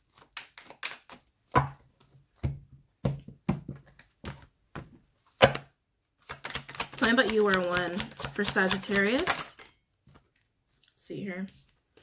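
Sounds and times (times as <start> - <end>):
cards being shuffled: 0.0 - 1.4, 6.2 - 10.8.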